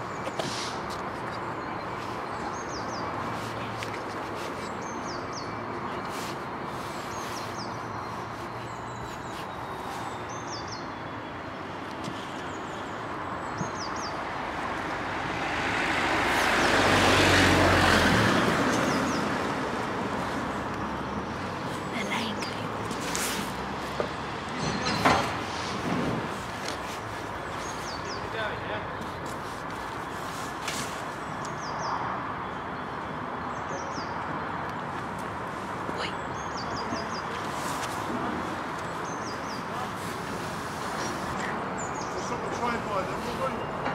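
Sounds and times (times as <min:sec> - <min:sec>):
small birds chirping: 0:00.0 - 0:15.0, 0:15.8 - 0:24.2, 0:25.6 - 0:43.8
passing vehicle rushing: 0:13.7 - 0:22.1
train wagons rumbling past: 0:23.6 - 0:26.6.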